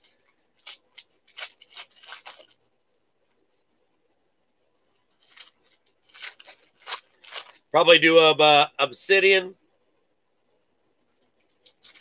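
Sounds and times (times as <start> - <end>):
foil wrappers crinkling: 0.0 - 2.7, 4.9 - 7.7, 11.5 - 12.0.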